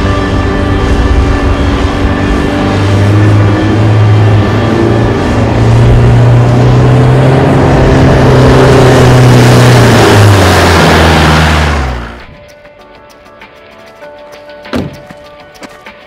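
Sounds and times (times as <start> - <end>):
van engine pulling uphill: 0.0 - 16.0
tyres crunching on gravel: 14.6 - 16.0.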